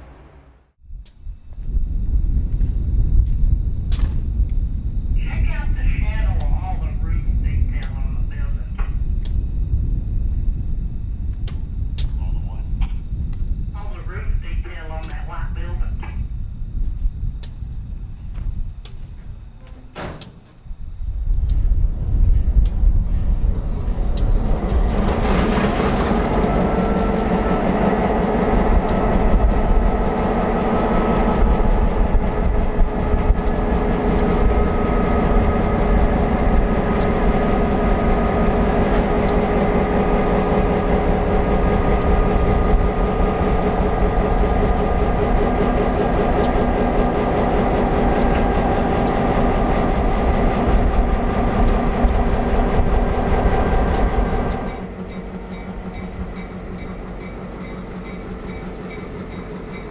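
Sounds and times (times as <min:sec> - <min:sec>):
diesel locomotive engine idling: 0:10.9 - 0:16.7, 0:19.4 - 0:59.9
sharp engine ticks: 0:15.0 - 0:15.3, 0:28.2 - 0:59.9.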